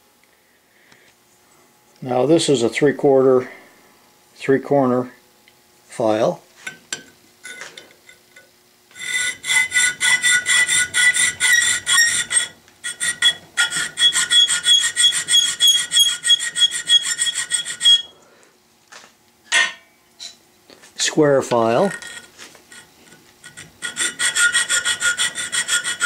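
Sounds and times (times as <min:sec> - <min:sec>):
hand file rasping on metal: 0:08.9 - 0:18.1, 0:21.8 - 0:26.0.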